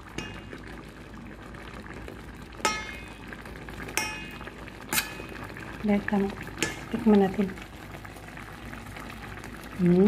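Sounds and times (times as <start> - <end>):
pot simmering with bubbling hiss: 0.0 - 10.0
metal spoon clinking on pot: 2.6 - 3.2, 4.0 - 5.4.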